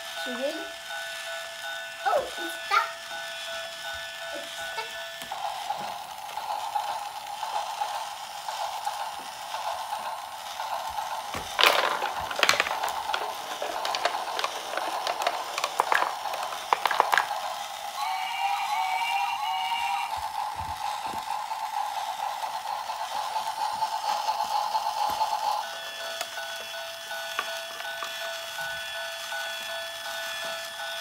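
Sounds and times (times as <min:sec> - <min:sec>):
toy train whirring: 0:00.0 - 0:31.0
marbles clattering on wood: 0:09.8 - 0:17.6.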